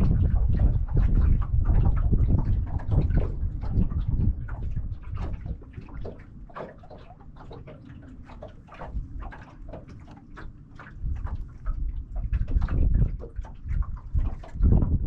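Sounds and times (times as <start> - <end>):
wind gusting on microphone: 0.0 - 6.1, 11.0 - 15.0
water splashing around boat: 0.0 - 15.0.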